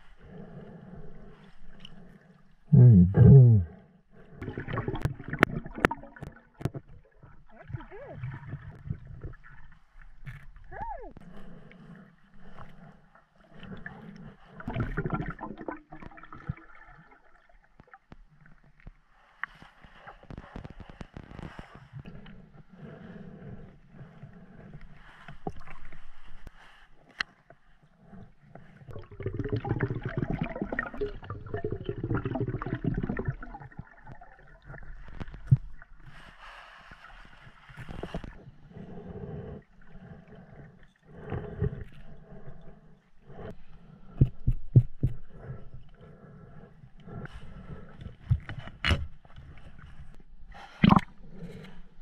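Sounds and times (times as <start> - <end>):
underwater gurgling and bubbling: 2.7 - 10.4, 13.5 - 18.0, 28.0 - 36.3, 50.7 - 51.6.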